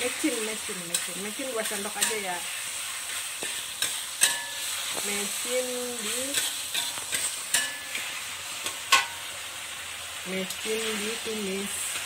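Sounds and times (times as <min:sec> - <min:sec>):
metal spatula scraping a wok: 0:00.0 - 0:09.4
paste sizzling in hot oil: 0:00.0 - 0:12.0.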